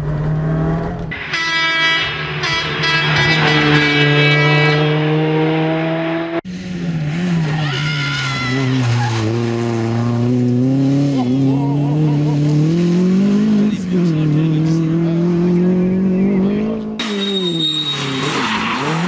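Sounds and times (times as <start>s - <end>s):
rally car engine at high revs: 2.3s - 19.0s
tyre squeal: 17.0s - 19.0s.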